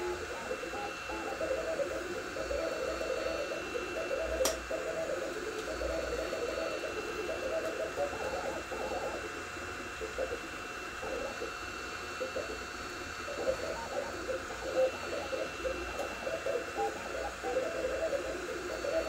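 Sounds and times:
cooling fan hiss: 0:00.0 - 0:19.0
stepper motors whining: 0:00.0 - 0:19.0
sharp click: 0:04.4 - 0:04.6.

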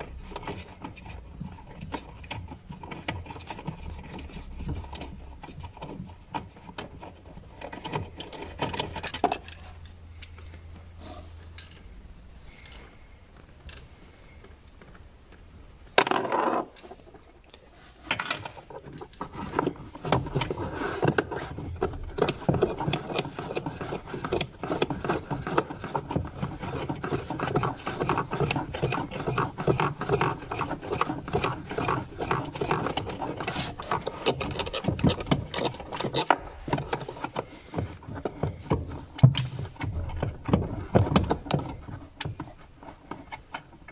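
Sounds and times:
hands scraping plastic trim: 0:18.1 - 0:43.9.

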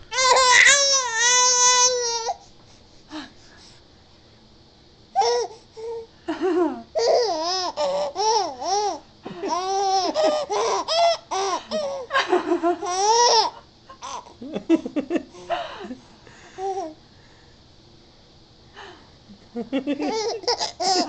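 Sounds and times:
baby laughing squeals: 0:00.2 - 0:02.4.

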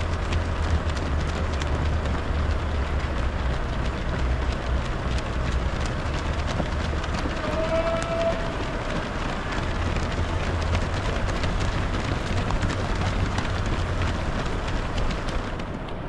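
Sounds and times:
low steady rumble: 0:00.0 - 0:16.0
running footsteps on asphalt: 0:00.0 - 0:16.0.

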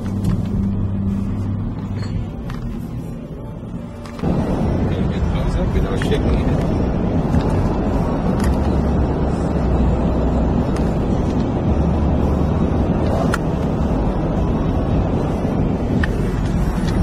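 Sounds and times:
car road and wind noise: 0:00.0 - 0:17.0.

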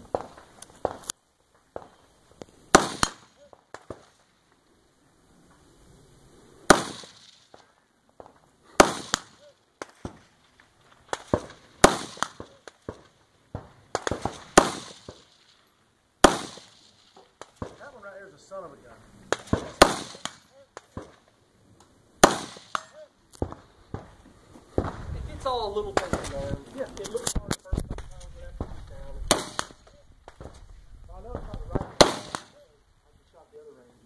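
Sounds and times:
gunshots: 0:02.7 - 0:04.2, 0:06.7 - 0:15.4, 0:16.2 - 0:18.1, 0:19.3 - 0:21.3, 0:22.2 - 0:26.5, 0:28.6 - 0:30.6, 0:31.3 - 0:32.7.

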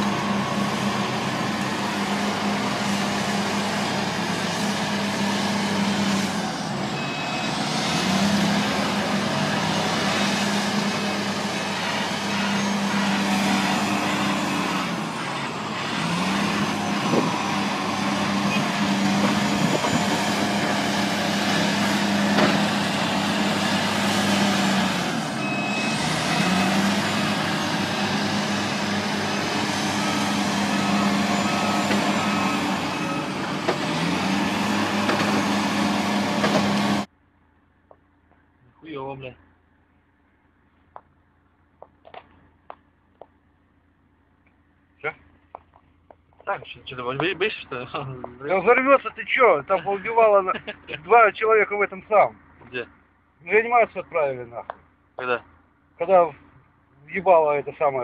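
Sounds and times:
heavy diesel machinery running: 0:00.0 - 0:52.8.

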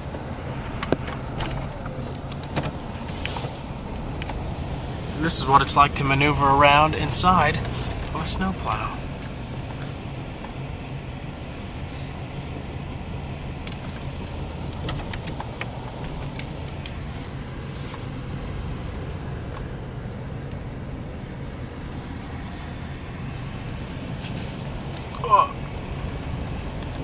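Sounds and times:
sharp clicks and rattles: 0:00.0 - 0:04.6, 0:05.6 - 0:10.8, 0:13.6 - 0:17.0
car engine running: 0:00.0 - 0:27.0.

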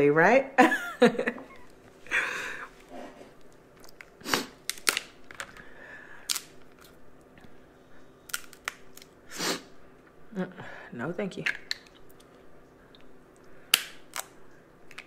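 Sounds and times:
crab shells cracking: 0:03.8 - 0:07.0, 0:08.3 - 0:09.2, 0:11.4 - 0:12.3, 0:13.7 - 0:15.0.

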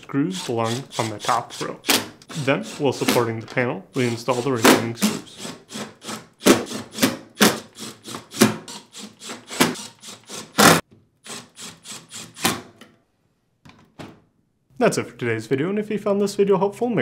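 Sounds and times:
cordless drill driving screws: 0:00.4 - 0:03.2, 0:04.0 - 0:12.6.

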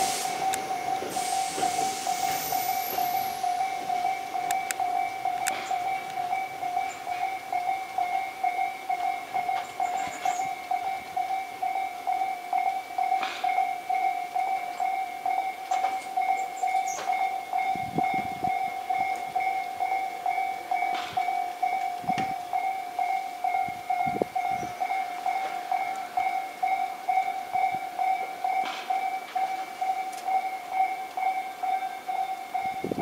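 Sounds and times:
train low clunks: 0:00.0 - 0:08.2, 0:13.2 - 0:13.7, 0:20.8 - 0:21.4, 0:28.1 - 0:29.6
electric train rolling over rails: 0:00.0 - 0:33.0
level crossing warning bell: 0:00.0 - 0:33.0.

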